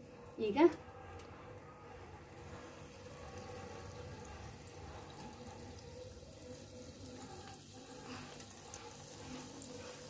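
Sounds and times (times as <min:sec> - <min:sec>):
batter sizzling in hot oil: 0:02.3 - 0:10.0.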